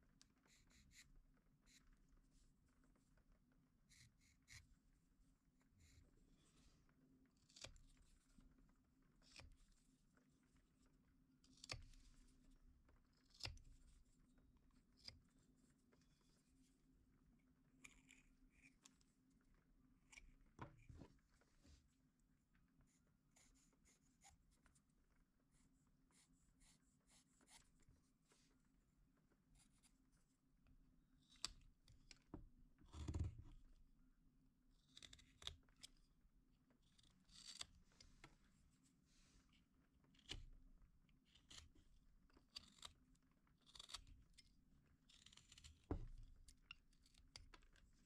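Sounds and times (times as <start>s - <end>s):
pencil scratching on wood: 0.4s - 1.9s, 3.9s - 4.7s, 22.9s - 24.8s, 26.1s - 27.8s.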